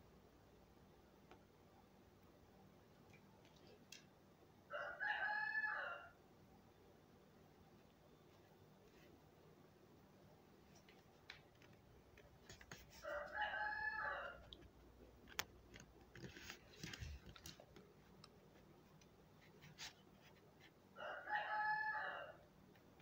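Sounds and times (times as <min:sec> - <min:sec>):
rooster crowing: 0:04.7 - 0:06.2, 0:13.0 - 0:14.4, 0:21.0 - 0:22.4.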